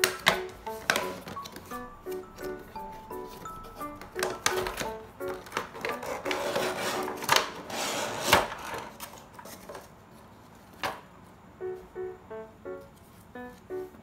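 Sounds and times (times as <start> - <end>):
cardboard and plastic bag rustling: 0.0 - 11.0.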